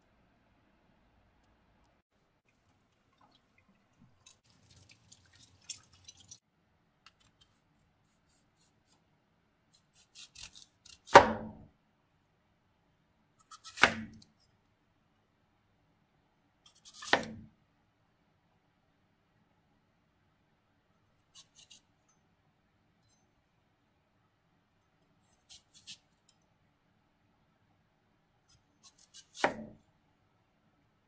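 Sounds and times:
knife cutting apple on board: 9.8s - 11.7s, 13.4s - 14.3s, 16.7s - 17.5s, 25.3s - 26.1s, 28.5s - 29.8s.

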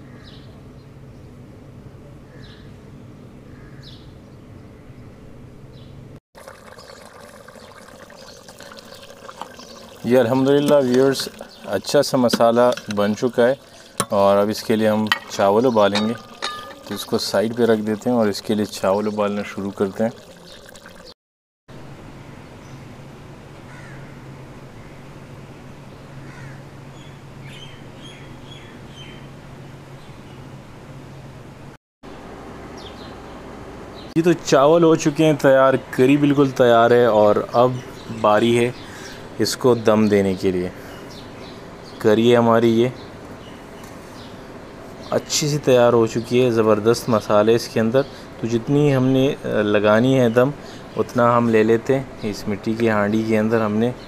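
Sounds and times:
birds chirping: 3.5s - 6.0s, 6.6s - 21.2s, 25.9s - 29.3s, 32.7s - 54.0s
curry bubbling and spitting in pot: 6.4s - 21.1s.

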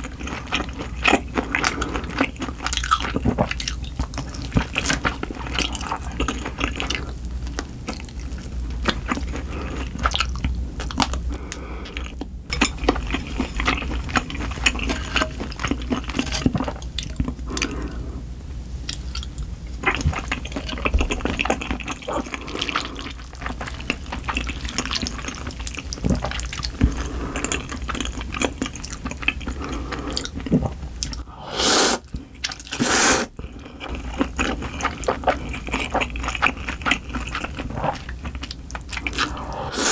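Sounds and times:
chewing with mouth clicks: 0.0s - 17.9s, 18.9s - 31.3s, 32.0s - 39.6s
slurping noodles: 31.3s - 32.1s, 32.7s - 33.4s, 39.0s - 39.9s.

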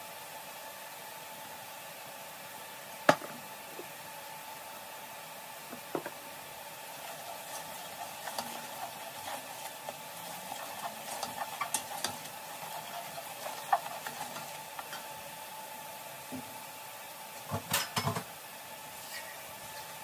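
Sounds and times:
spatula stirring wet vegetables: 6.8s - 15.6s.

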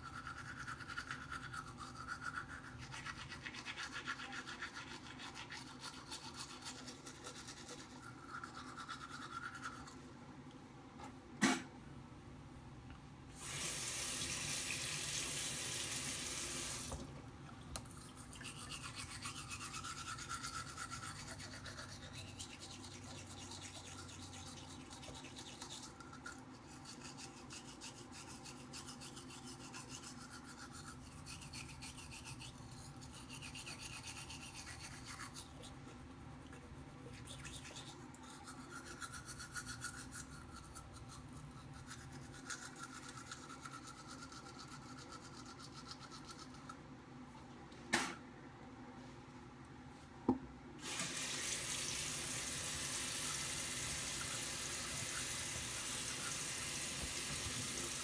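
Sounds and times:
toothbrush brushing teeth: 0.0s - 10.1s, 17.8s - 46.8s, 52.1s - 58.0s
water running from a tap: 13.4s - 17.1s, 50.8s - 58.0s.

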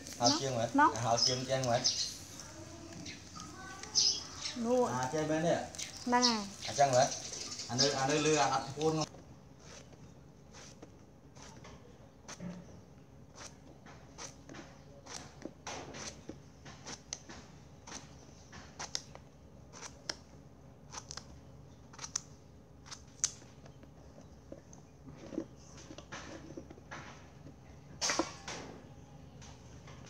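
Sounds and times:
knife cutting gourd: 13.3s - 17.2s, 17.8s - 20.3s, 20.9s - 21.3s, 21.9s - 23.4s.

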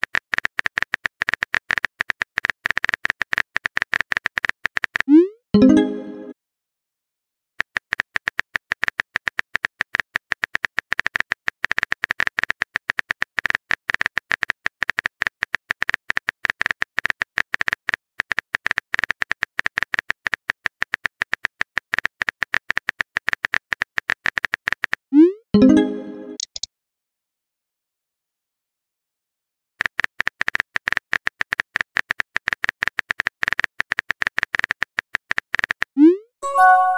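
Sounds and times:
phone keyboard key clicks: 26.4s - 26.7s.

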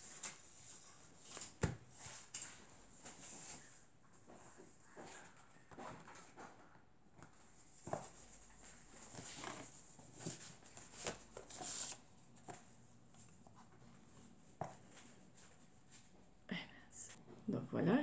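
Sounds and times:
paper rustling: 7.7s - 13.7s.

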